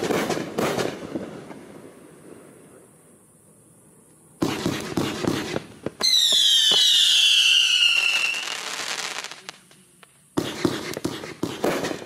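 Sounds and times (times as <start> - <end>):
rapid burst of firework bangs: 0.0 - 1.6, 4.4 - 9.5, 10.4 - 12.0
firework whistle sliding down: 6.0 - 9.1.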